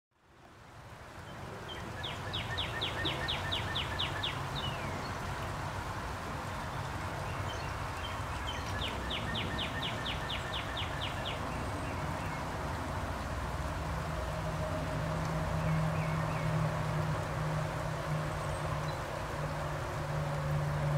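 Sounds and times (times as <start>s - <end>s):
songbird singing: 1.2s - 5.6s, 6.3s - 12.8s, 15.5s - 17.2s, 18.0s - 19.9s.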